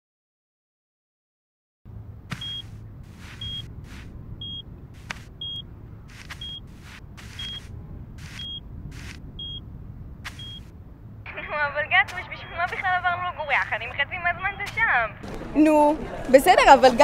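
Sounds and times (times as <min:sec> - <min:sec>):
low steady hum: 0:01.9 - 0:15.5
brief rustling: 0:02.3 - 0:09.5, 0:10.2 - 0:10.7
mine detector beeping: 0:02.3 - 0:09.6, 0:10.3 - 0:10.7.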